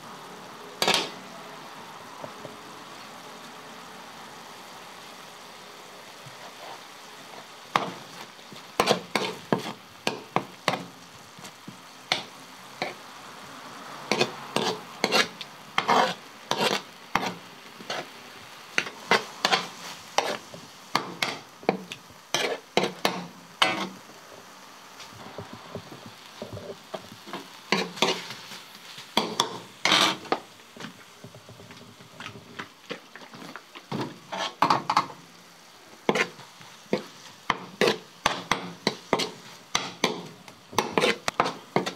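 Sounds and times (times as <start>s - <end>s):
meat sizzling: 0.0s - 41.9s
metal spatula scraping steel pan: 0.8s - 1.2s, 8.8s - 10.8s, 14.1s - 18.1s, 18.8s - 21.4s, 22.3s - 24.0s, 26.8s - 30.4s, 33.9s - 35.1s, 36.1s - 41.9s.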